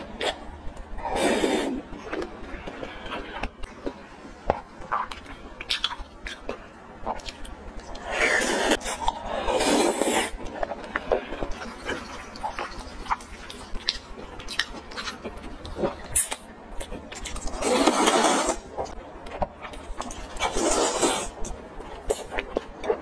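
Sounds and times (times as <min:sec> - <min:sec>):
wet chewing: 0:00.0 - 0:23.0
noodle slurps: 0:17.6 - 0:18.7.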